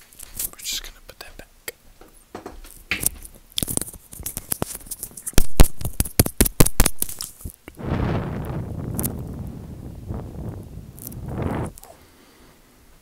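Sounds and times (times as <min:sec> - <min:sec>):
sharp clicks and crackles: 0:03.0 - 0:07.8, 0:08.4 - 0:09.5, 0:10.9 - 0:11.9.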